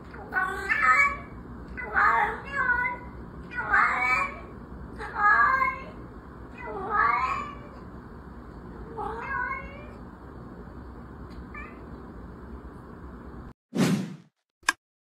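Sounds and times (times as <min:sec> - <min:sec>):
cat meowing: 0:06.6 - 0:07.8, 0:08.9 - 0:10.0, 0:11.5 - 0:11.9.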